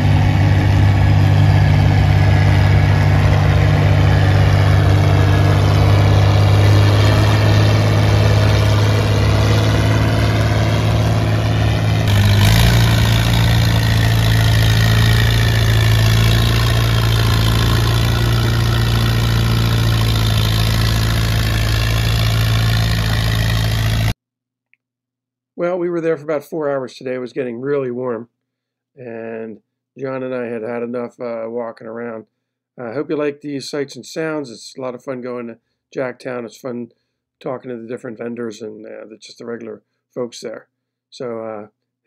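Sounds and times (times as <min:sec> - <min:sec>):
tractor engine running under load: 0:00.0 - 0:24.2.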